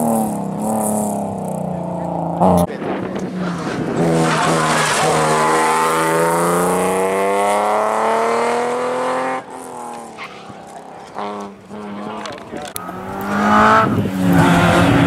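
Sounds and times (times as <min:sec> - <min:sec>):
rally car engine accelerating: 0:00.0 - 0:15.0.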